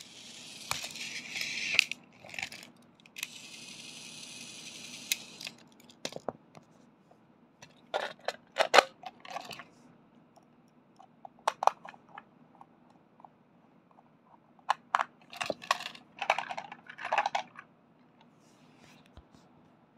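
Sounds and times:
plastic toy train clicks and rattles: 0.0 - 6.3, 7.9 - 9.6, 11.4 - 12.2, 14.6 - 17.6.

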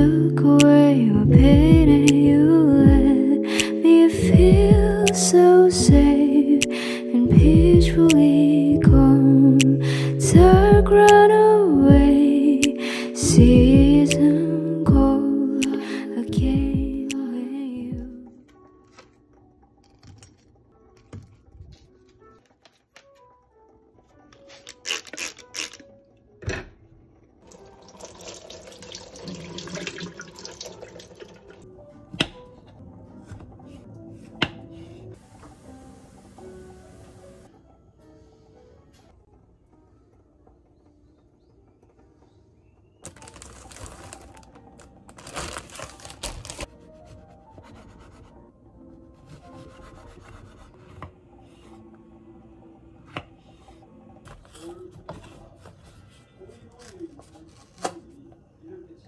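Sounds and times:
tap water running over strainer: 27.4 - 31.6
bread bag rustling: 43.0 - 46.8.

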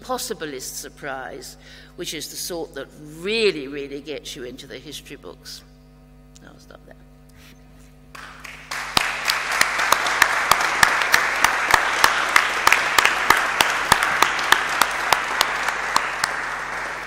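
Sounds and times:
sharp close claps: 8.1 - 17.0
audience applause: 8.2 - 17.0.

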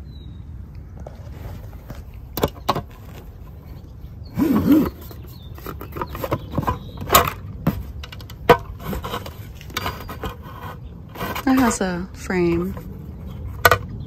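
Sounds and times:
plastic case squeak: 2.4 - 14.0
plastic clicks and knocks: 13.6 - 14.0.

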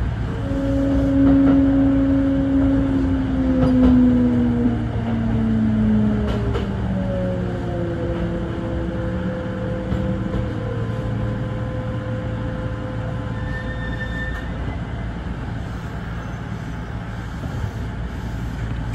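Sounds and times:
train wheels rumbling on track: 0.0 - 18.9
train motor whine: 0.2 - 7.1.

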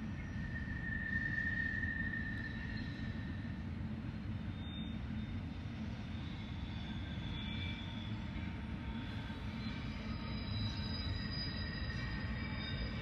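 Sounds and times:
train rumbling on rails: 0.0 - 13.0
wheel squeal: 9.0 - 13.0.

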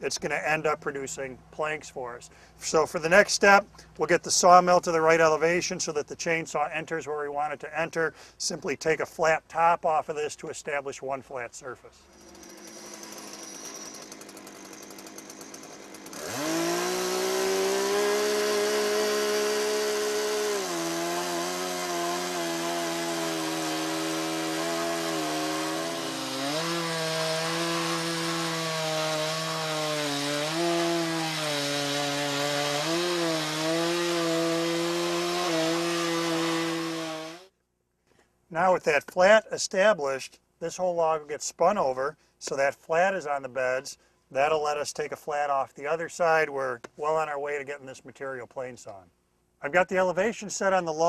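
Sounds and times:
chainsaw cutting log: 12.0 - 37.5.

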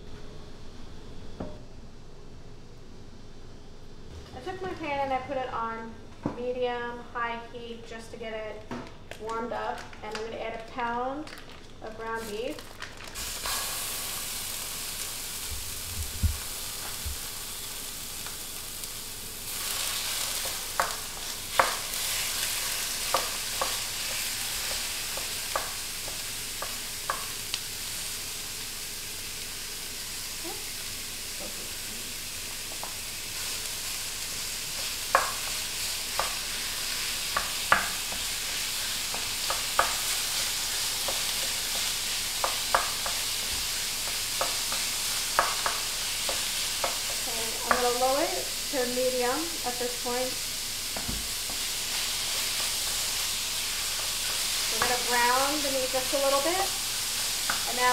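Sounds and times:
meat sizzling in a skillet: 12.2 - 57.9.

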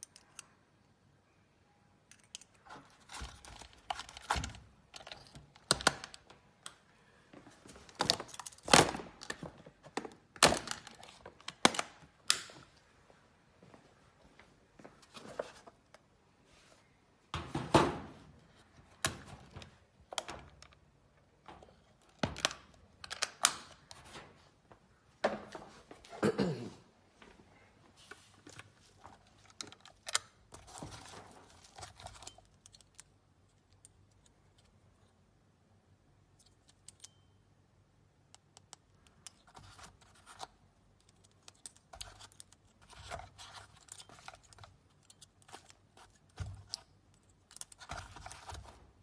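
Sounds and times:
objects knocking and thunking: 17.3 - 18.3.

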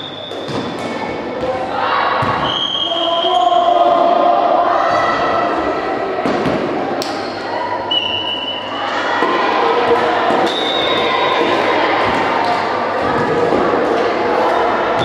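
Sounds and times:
people calling out: 1.5 - 6.2, 7.2 - 15.0
short whistle tones: 7.9 - 8.7.

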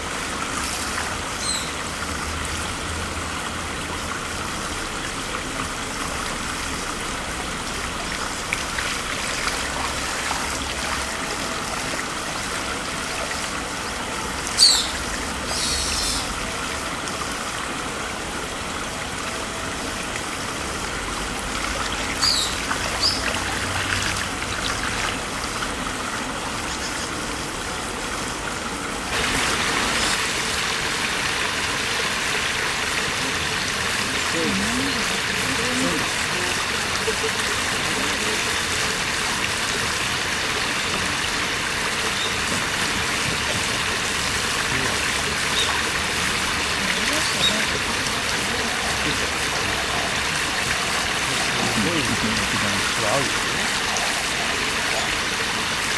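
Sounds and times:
stream trickling over gravel: 0.0 - 55.9
water spilling over a weir: 0.0 - 55.9
high bird chirps: 1.4 - 1.8, 14.6 - 16.2, 22.2 - 23.2.

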